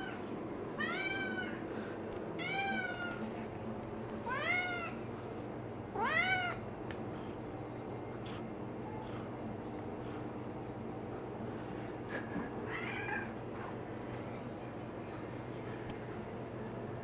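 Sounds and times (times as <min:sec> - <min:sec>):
cat meowing: 0:00.8 - 0:01.6, 0:04.3 - 0:05.0, 0:06.0 - 0:06.6.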